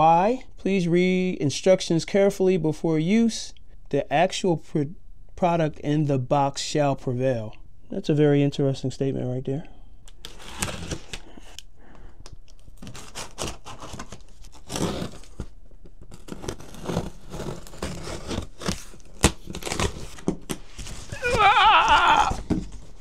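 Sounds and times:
packing tape tearing: 10.1 - 11.2, 12.5 - 22.9
cardboard flaps scraping: 10.2 - 11.2, 12.8 - 23.0.

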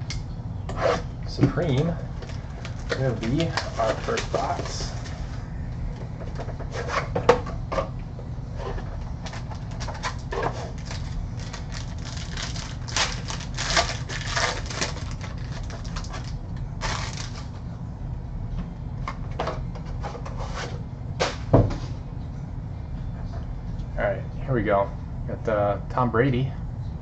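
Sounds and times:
steady low hum: 0.0 - 27.0
trading cards crinkling and rustling: 1.8 - 6.9, 9.0 - 17.7.

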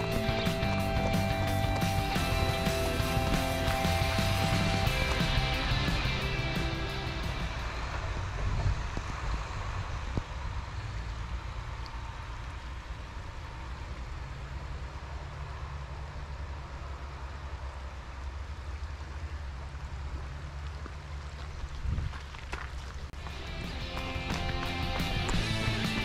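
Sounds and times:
stony stream rushing: 0.0 - 9.8, 19.9 - 26.0
wind rumbling on microphone: 0.0 - 11.3, 20.7 - 23.9.

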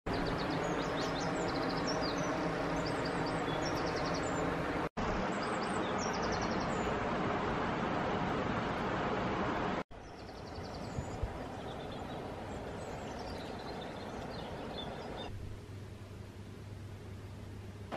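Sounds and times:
small birds chirping: 0.1 - 7.1, 9.9 - 15.4
flooded river rushing: 6.6 - 9.8.

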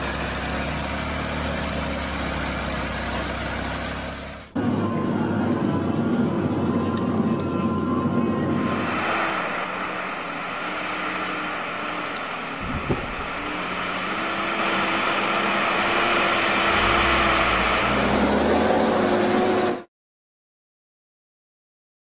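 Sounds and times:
car engine running: 0.0 - 19.8.

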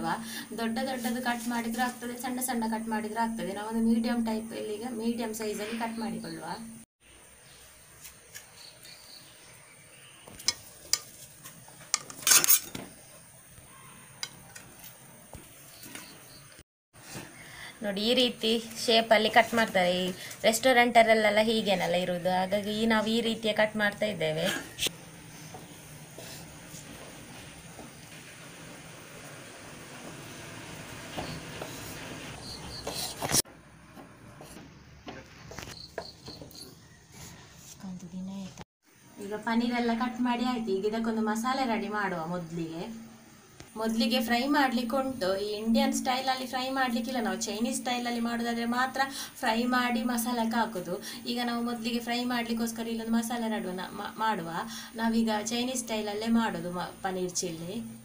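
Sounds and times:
knife blade scraping steel: 11.9 - 12.8.

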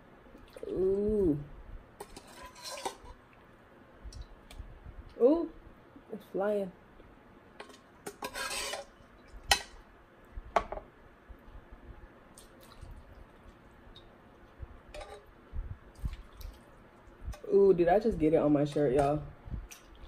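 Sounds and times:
metal ladle scraping a saucepan: 2.0 - 3.2, 7.6 - 8.9, 15.0 - 15.3.

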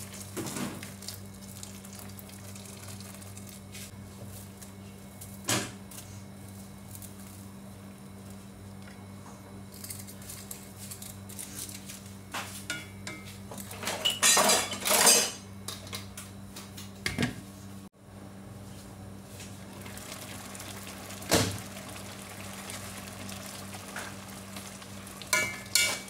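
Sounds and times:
broth simmering: 0.0 - 3.7, 19.5 - 26.0
spatula clattering: 25.3 - 26.0.

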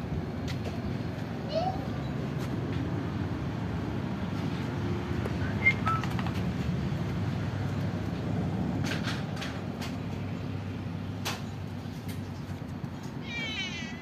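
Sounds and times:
cat meowing: 13.2 - 14.0.

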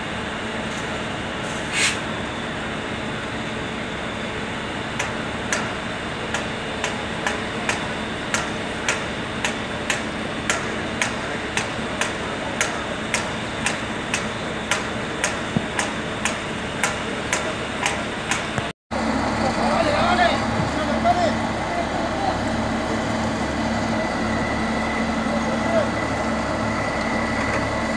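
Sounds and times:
hammer striking metal: 5.0 - 18.6.

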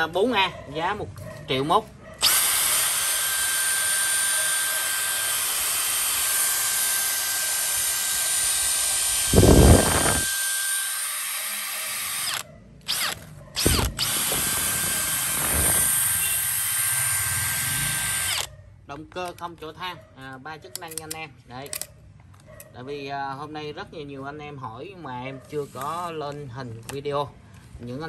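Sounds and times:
drill motor whining: 2.2 - 18.5.

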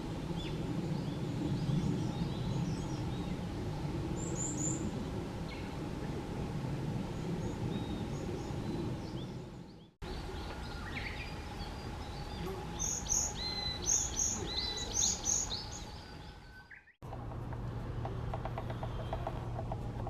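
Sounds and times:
varied tit singing: 10.1 - 17.0.

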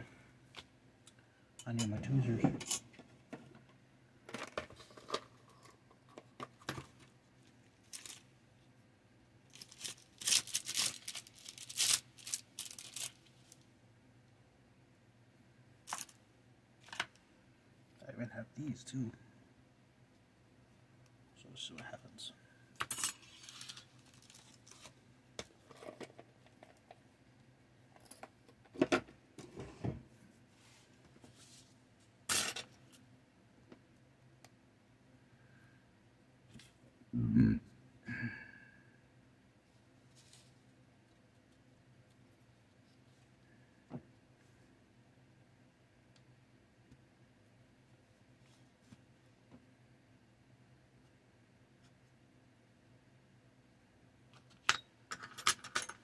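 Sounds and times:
plastic crinkling and clattering: 7.8 - 8.3, 9.5 - 13.6, 15.9 - 16.2, 22.8 - 26.8.

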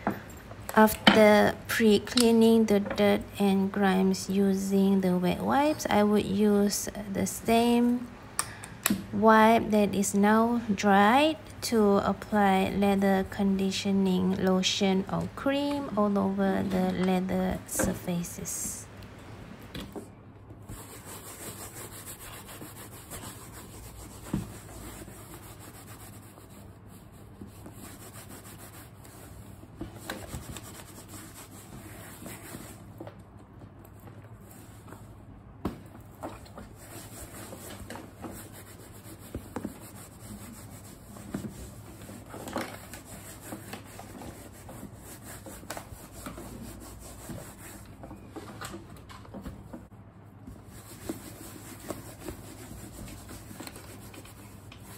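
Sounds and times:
wipe scrubbing leather: 20.7 - 29.5, 36.6 - 42.3, 50.6 - 54.9.

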